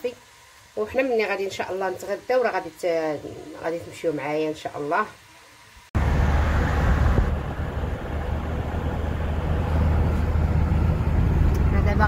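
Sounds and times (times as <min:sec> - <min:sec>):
car engine and road rumble: 0:06.0 - 0:12.0.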